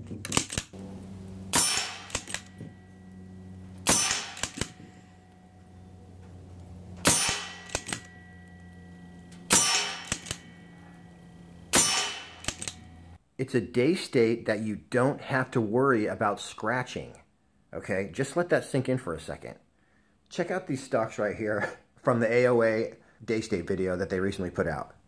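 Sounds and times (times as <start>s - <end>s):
air rifle shot cracks: 1.5s - 2.5s, 3.8s - 4.8s, 7.0s - 8.1s, 9.5s - 10.5s, 11.7s - 12.8s
pellets clanging on steel targets: 1.5s - 6.1s, 7.0s - 13.0s.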